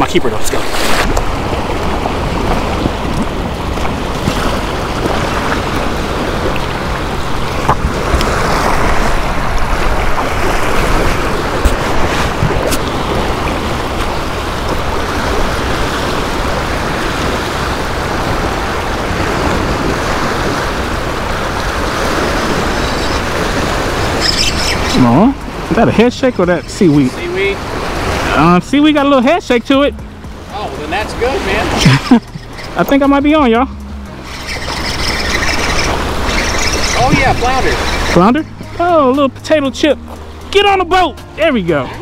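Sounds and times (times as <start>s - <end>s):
wind rumbling on microphone: 0.0s - 28.6s, 29.7s - 38.8s
sea surf washing against rocks: 0.0s - 29.7s, 30.4s - 32.1s, 34.8s - 39.2s.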